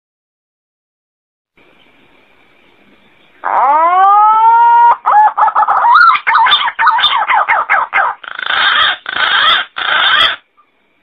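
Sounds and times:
harsh rasping bird calls: 1.8 - 10.7
pigeon warbling notes: 3.4 - 10.4
pigeon whistling call: 3.7 - 10.4.

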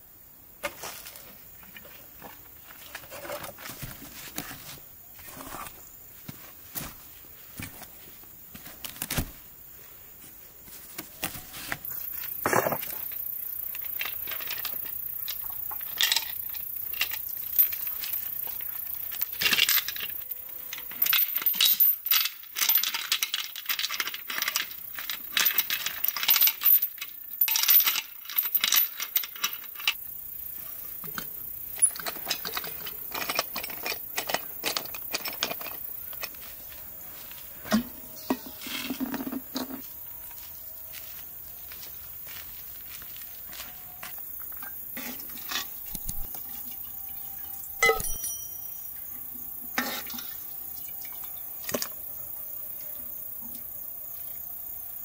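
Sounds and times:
utensils and dishes clinking: 31.7 - 36.4, 44.6 - 49.0.

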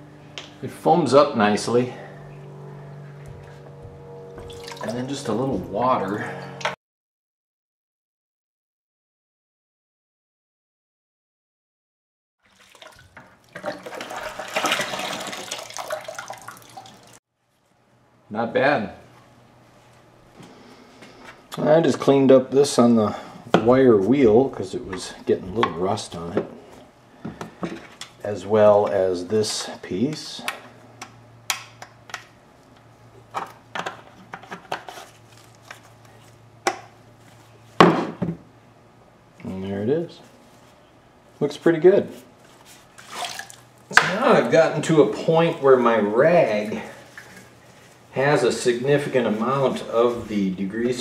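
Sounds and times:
water drips: 4.4 - 5.0, 15.3 - 17.2
water sloshing in plastic bucket: 4.4 - 5.1, 12.4 - 17.2, 42.8 - 44.0.

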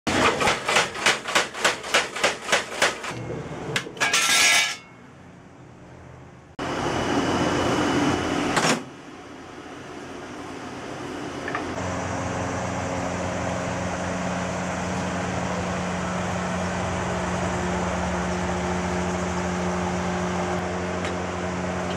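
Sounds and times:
power hammer pounding steel: 0.1 - 3.2
steady mechanical noise: 0.1 - 21.9
metallic clatter: 3.1 - 5.0.

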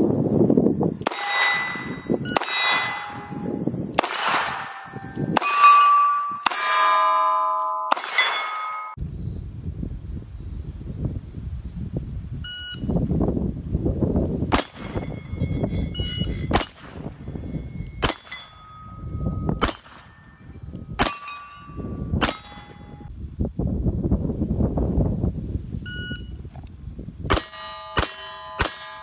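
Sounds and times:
revolver shots: 1.1 - 7.0, 7.9 - 8.9
steel target plate ringing: 1.1 - 9.0, 14.6 - 23.1, 27.3 - 29.0.

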